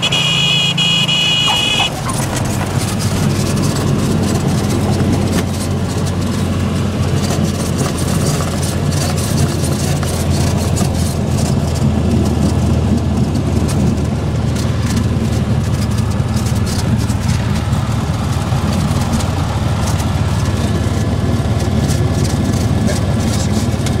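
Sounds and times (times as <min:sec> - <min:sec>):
light aircraft engine droning: 0:00.0 - 0:24.0.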